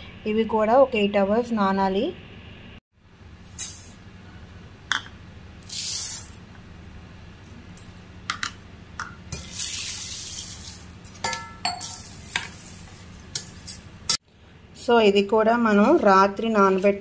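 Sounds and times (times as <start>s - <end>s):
spoon clinking on steel bowl: 11.2s - 12.1s.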